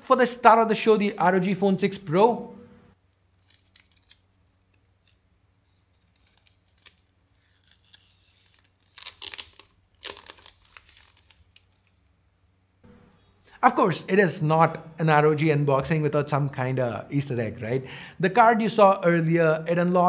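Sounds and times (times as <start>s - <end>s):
plastic film crinkling: 3.0s - 12.0s.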